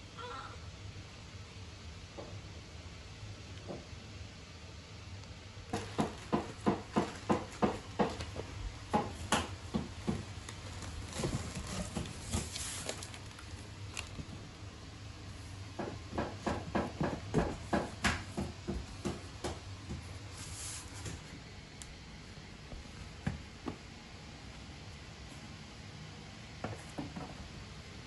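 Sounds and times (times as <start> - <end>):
wrapping rustling: 10.4 - 14.3
cardboard scraping: 10.6 - 13.4.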